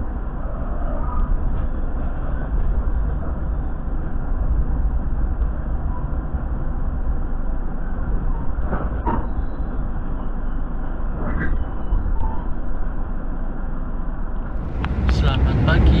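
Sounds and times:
train carriage rumbling: 0.0s - 16.0s.

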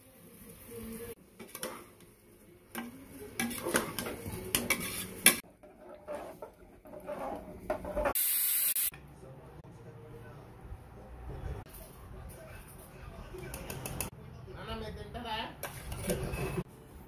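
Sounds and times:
metal spoon scraping pot: 2.8s - 8.2s.

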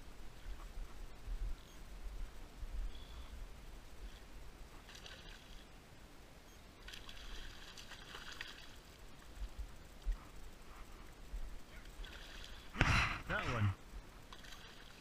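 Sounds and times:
fish splashing in water: 4.8s - 5.6s, 6.8s - 9.0s, 11.9s - 12.8s, 14.3s - 15.0s.

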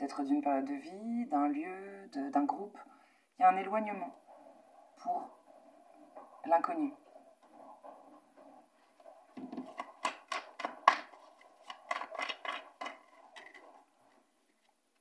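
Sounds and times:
cards being shuffled: 9.7s - 13.7s.

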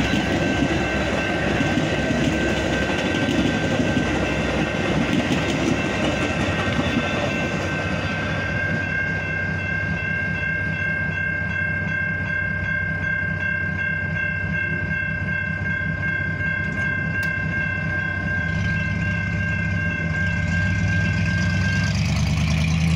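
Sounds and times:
railroad crossing bell ringing: 0.0s - 22.9s.

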